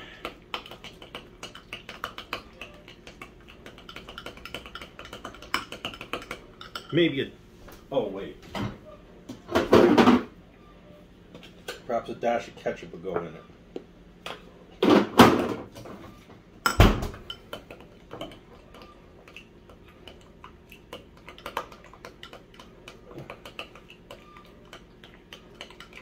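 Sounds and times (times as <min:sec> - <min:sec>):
spoon stirring thick sauce: 0:00.3 - 0:07.0, 0:17.3 - 0:26.0.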